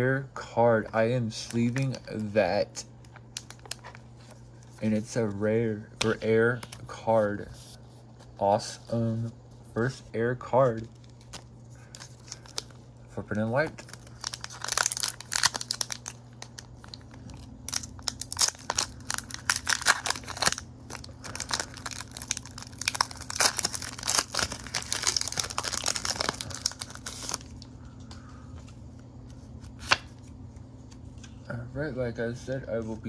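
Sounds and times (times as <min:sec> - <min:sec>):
faint low hum: 0:00.0 - 0:33.0
handling of cards: 0:00.8 - 0:10.0, 0:10.6 - 0:31.4
foil wrapper crinkling and tearing: 0:02.9 - 0:04.8, 0:10.8 - 0:12.8, 0:13.4 - 0:27.7.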